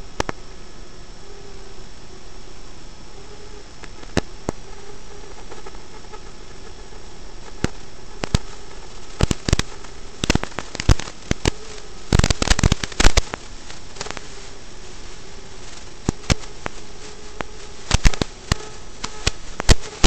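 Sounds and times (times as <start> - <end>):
faint steady hum: 0.0 - 20.0
sharp crackles and pops: 0.0 - 20.0
static hiss: 0.0 - 20.0.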